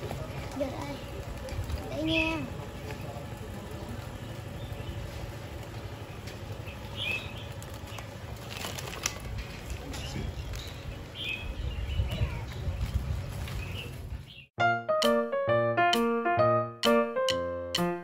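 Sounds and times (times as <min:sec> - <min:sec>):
wind buffeting microphone: 0:09.2 - 0:14.5.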